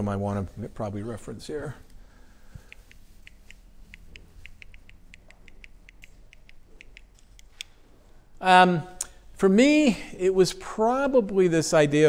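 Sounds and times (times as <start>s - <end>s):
remote button clicking: 2.6s - 7.8s.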